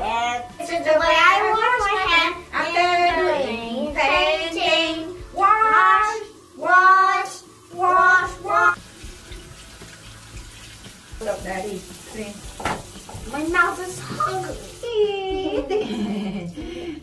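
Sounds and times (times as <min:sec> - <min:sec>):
child singing: 0:00.0 - 0:08.8
tap running into sink: 0:08.9 - 0:14.8.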